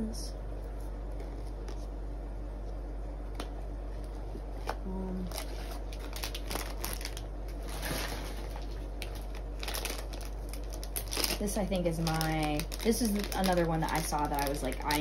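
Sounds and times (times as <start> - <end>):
air conditioner hum: 0.0 - 15.0
foil wrapper crinkling: 5.2 - 15.0.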